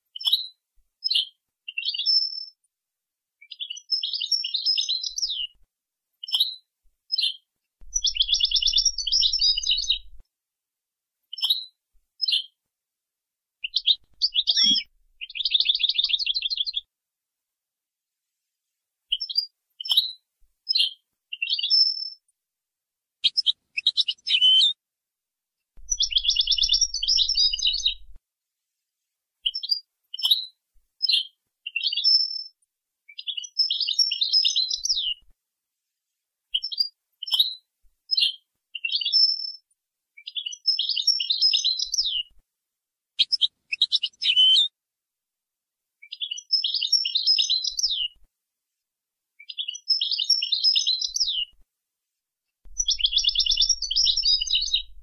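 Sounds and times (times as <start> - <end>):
goldfinch twittering and trills: 7.9 - 10.2, 13.7 - 16.8, 25.8 - 28.2, 46.1 - 48.1, 49.5 - 51.4, 52.7 - 55.0.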